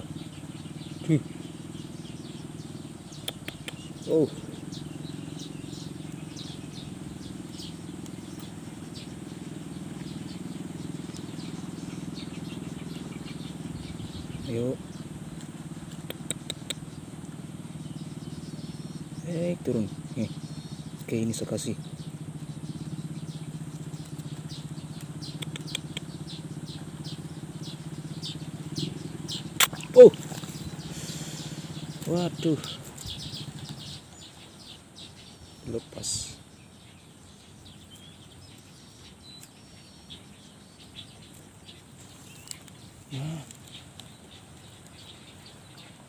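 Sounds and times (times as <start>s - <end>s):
steady low drone: 0.0s - 34.2s
engine idling: 0.0s - 46.0s
short high bird chirps: 3.0s - 9.4s.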